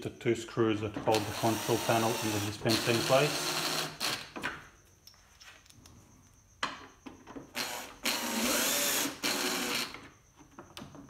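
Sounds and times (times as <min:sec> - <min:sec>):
cordless drill driving a screw: 0:01.1 - 0:04.2, 0:07.6 - 0:10.0.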